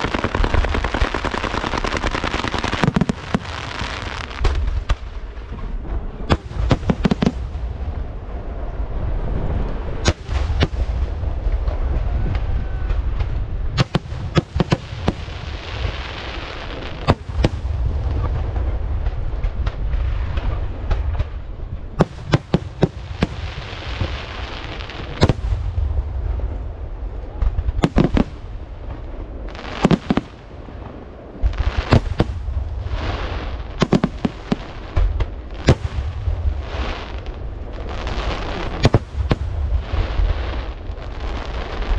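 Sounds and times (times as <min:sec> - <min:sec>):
firework hissing crackle: 0:00.0 - 0:05.3, 0:13.7 - 0:20.9, 0:22.0 - 0:26.2, 0:27.8 - 0:41.9.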